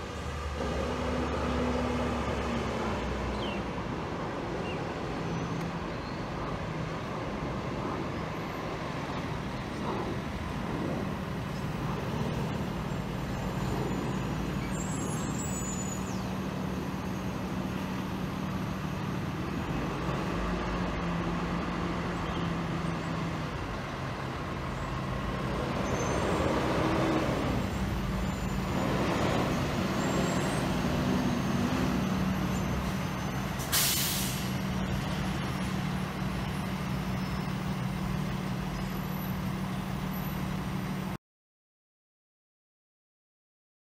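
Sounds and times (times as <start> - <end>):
truck engine droning: 7.0 - 41.2
air brakes hiss: 33.6 - 34.6.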